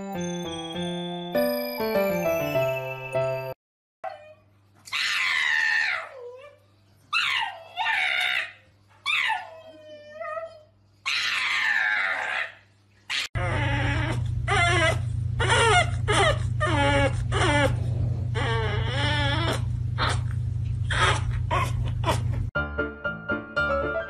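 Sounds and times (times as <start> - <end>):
puppy whining and yowling: 4.0 - 22.5
dog screaming: 4.8 - 6.4, 7.1 - 9.6, 11.0 - 17.8, 20.9 - 22.4
steady low hum: 13.7 - 22.5.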